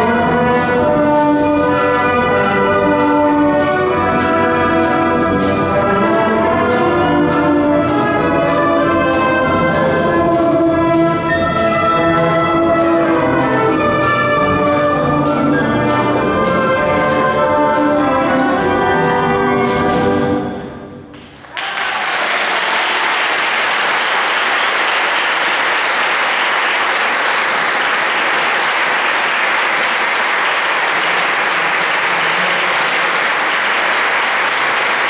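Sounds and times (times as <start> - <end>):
audience applause: 21.4 - 35.0.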